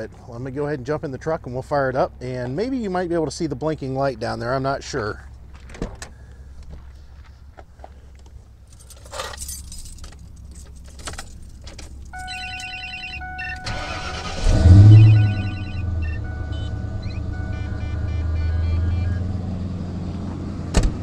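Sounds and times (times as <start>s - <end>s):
clicks and thump in truck cab: 5.6s - 6.8s, 20.7s - 21.0s
truck engine idling: 11.4s - 20.6s
electronic warning chime: 12.2s - 19.3s
starter motor cranking: 13.6s - 14.9s.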